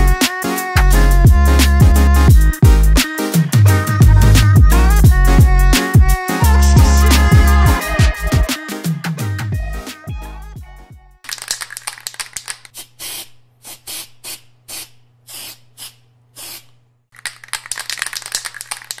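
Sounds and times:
spray paint can hissing: 12.8s - 16.7s.

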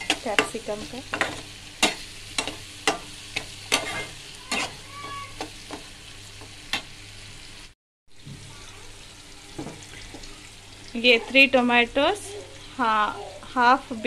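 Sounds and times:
metal spatula scraping a pan: 0.0s - 5.8s
vegetables sizzling in oil: 0.0s - 14.0s.

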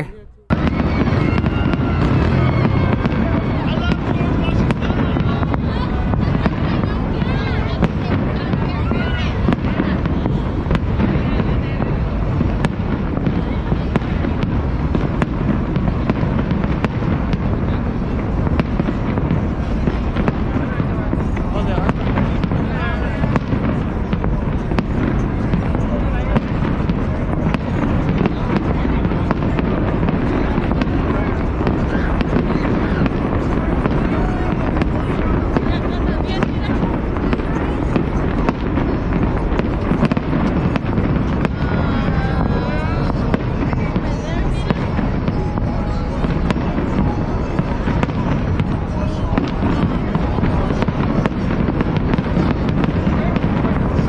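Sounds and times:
rumble of firework bursts: 0.0s - 54.0s
sharp firework cracks: 0.0s - 54.0s.

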